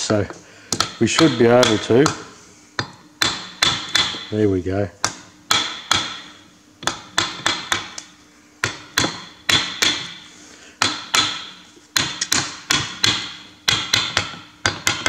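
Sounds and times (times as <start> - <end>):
hammer striking metal plate: 0.8 - 4.3, 5.5 - 8.0, 8.6 - 10.2, 10.8 - 15.0.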